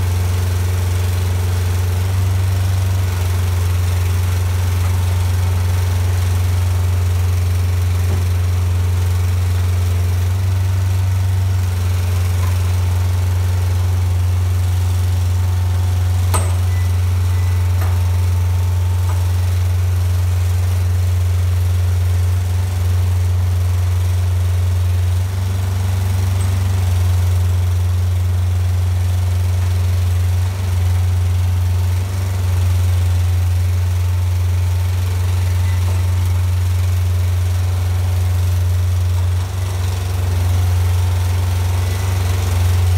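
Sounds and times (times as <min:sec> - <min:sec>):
diesel engine running: 0:00.0 - 0:42.9
hydraulic arms lowering container: 0:16.1 - 0:20.2.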